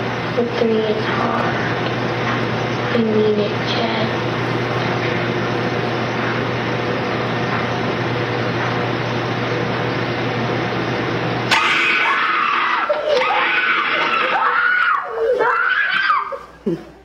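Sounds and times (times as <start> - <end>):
soundtrack hiss and hum: 0.0 - 17.0
child screaming: 11.5 - 16.5.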